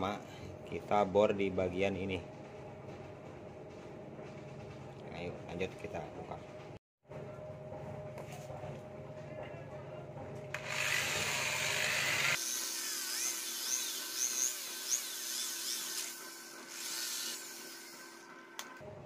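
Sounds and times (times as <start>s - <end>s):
electric drill motor: 10.5s - 18.8s
drill bit squealing on metal: 12.8s - 18.2s.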